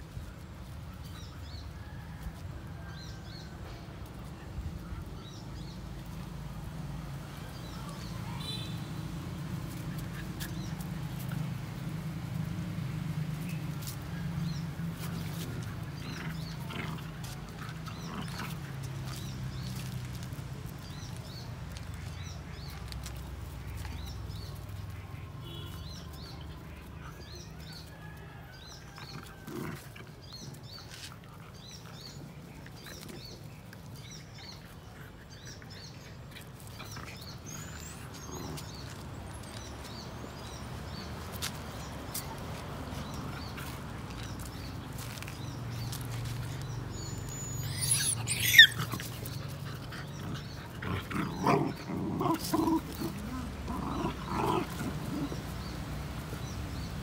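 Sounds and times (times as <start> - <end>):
puppies play-fighting and scuffling: 0.0 - 57.0
small birds chirping: 28.6 - 57.0
low dog growl: 49.6 - 55.8.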